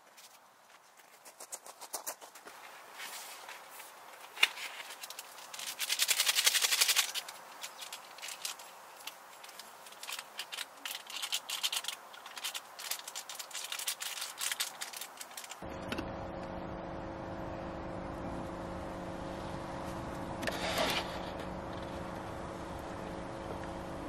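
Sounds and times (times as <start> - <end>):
mechanical hum with low drone: 2.5 - 24.0
packaging crinkling: 3.1 - 15.6.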